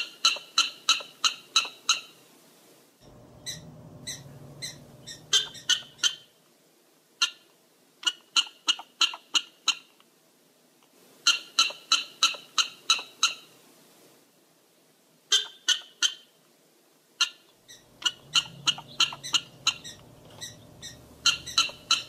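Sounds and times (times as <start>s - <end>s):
prairie dog barking: 3.4s - 6.2s, 17.2s - 22.0s.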